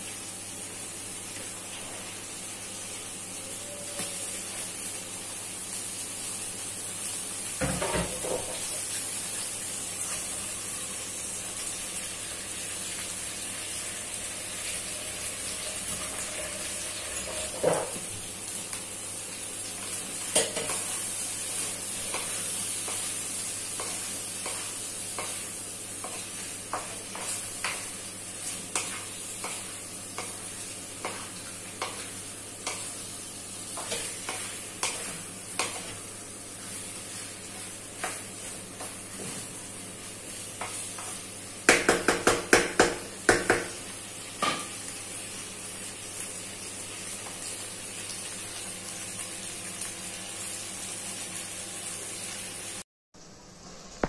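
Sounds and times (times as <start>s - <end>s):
shrimp sizzling in a wok: 0.0s - 54.0s
spatula knocking and scraping pan: 17.2s - 18.0s, 23.7s - 32.9s, 33.7s - 36.0s, 40.6s - 43.8s.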